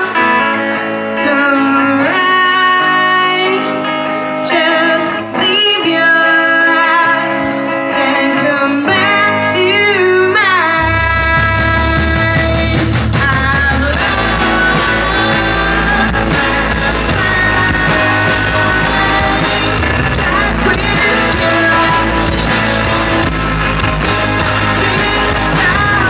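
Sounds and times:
electric guitar: 0:00.0 - 0:26.0
live rock band: 0:00.0 - 0:26.0
woman singing: 0:00.0 - 0:26.0
loud low bass: 0:10.8 - 0:26.0.

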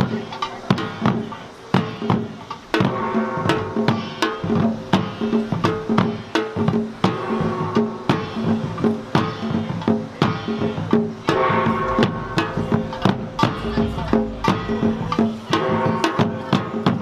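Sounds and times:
drums in fast rhythm: 0:00.0 - 0:17.0
small gong ringing: 0:11.3 - 0:16.1.

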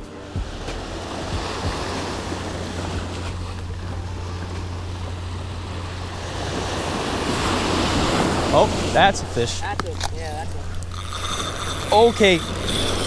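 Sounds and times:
small waves breaking on beach: 0:00.1 - 0:09.8.

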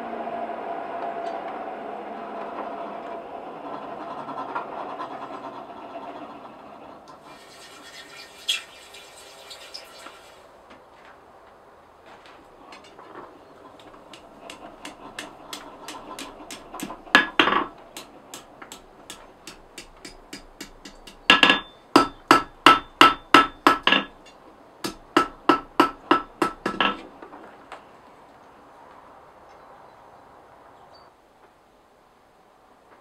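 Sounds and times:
hammer striking hot steel: 0:13.8 - 0:27.0
anvil ringing: 0:14.5 - 0:27.0.

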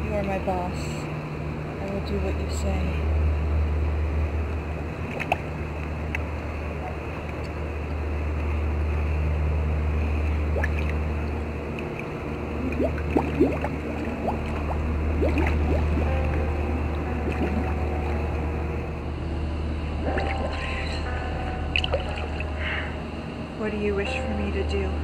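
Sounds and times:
underwater low hum: 0:00.0 - 0:25.0
underwater water noise: 0:04.9 - 0:18.9
rising bubbling sounds: 0:10.2 - 0:11.4, 0:12.4 - 0:18.4.

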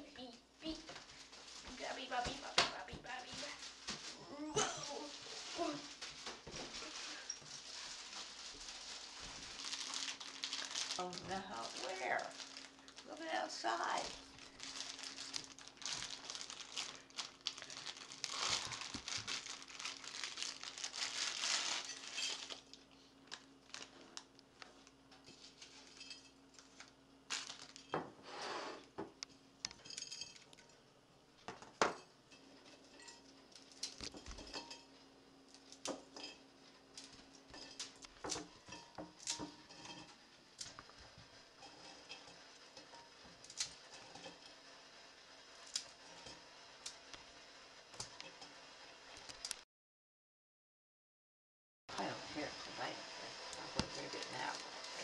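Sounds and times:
plastic wrapper crinkling: 0:03.1 - 0:28.0, 0:33.5 - 0:34.6.

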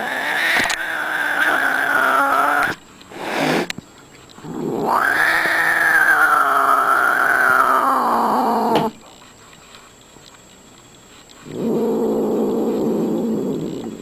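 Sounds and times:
cat growling: 0:00.0 - 0:03.7, 0:04.4 - 0:09.0, 0:11.4 - 0:14.0
cat yowling: 0:04.6 - 0:08.8.

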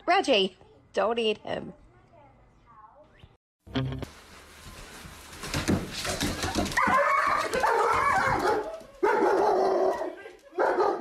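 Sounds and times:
thumps and scrabbling: 0:04.0 - 0:08.9.

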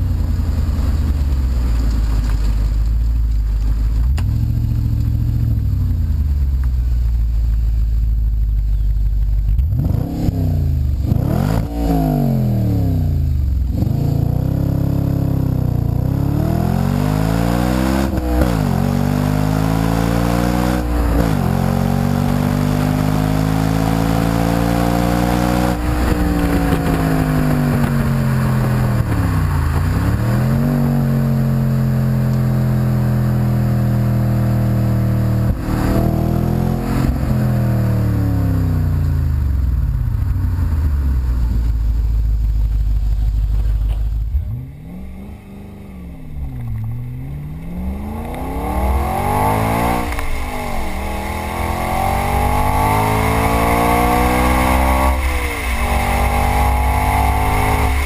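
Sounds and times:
car engine exhaust revving: 0:03.5 - 0:58.0.

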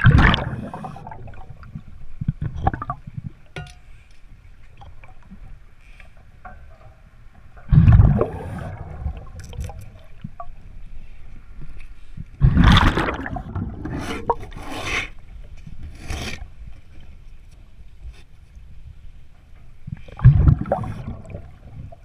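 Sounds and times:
exhaled bubbles gushing: 0:00.0 - 0:03.4, 0:07.7 - 0:10.5, 0:12.4 - 0:14.6, 0:20.1 - 0:22.0
faint ticks and rustling: 0:03.2 - 0:07.7, 0:09.4 - 0:12.4, 0:16.7 - 0:20.2
diver breathing underwater: 0:08.1 - 0:09.0.

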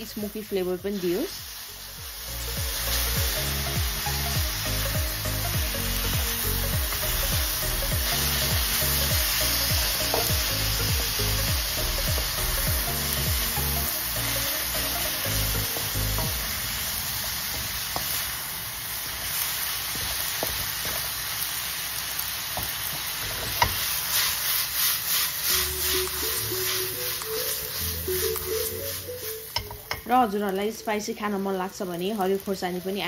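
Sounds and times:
food sizzling in a wok: 0:00.0 - 0:33.0
spatula stirring and tossing: 0:06.8 - 0:16.6, 0:19.0 - 0:21.3, 0:22.6 - 0:30.3.

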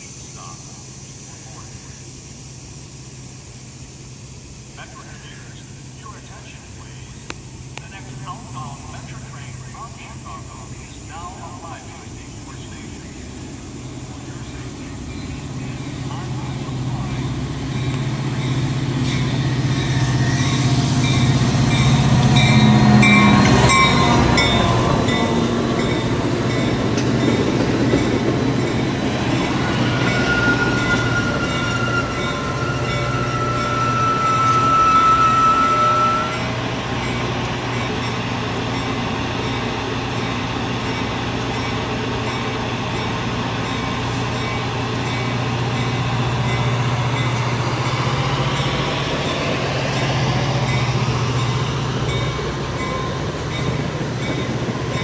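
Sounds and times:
diesel train passing: 0:00.0 - 0:55.0
train cars rumbling: 0:00.0 - 0:55.0
train wheel squeal: 0:13.4 - 0:55.0.

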